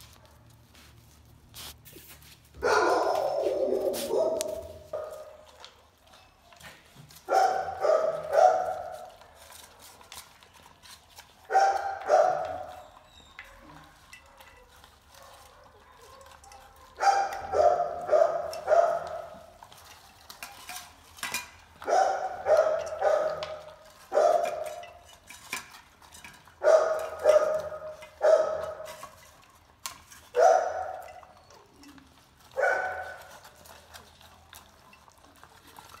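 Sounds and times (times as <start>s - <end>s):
dog barking: 2.6s - 5.4s, 7.3s - 9.1s, 11.5s - 12.7s, 15.1s - 19.4s, 21.8s - 24.8s, 26.6s - 28.9s, 30.4s - 31.1s, 32.6s - 33.3s
clinks of metal food bowls: 4.3s - 36.0s.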